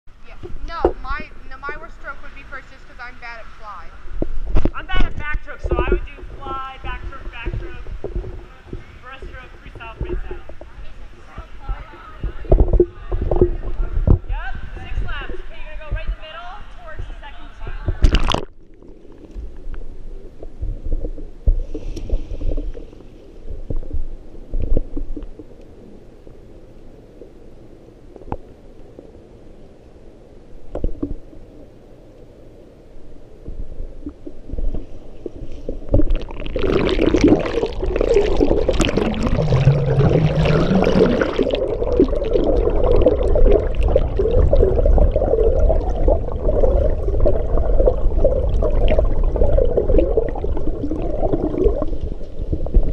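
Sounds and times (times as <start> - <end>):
swimmer churning water and bubbles: 4.0 - 16.1, 17.9 - 29.7, 30.5 - 32.4, 33.0 - 52.9
muffled underwater knocks: 7.3 - 14.3.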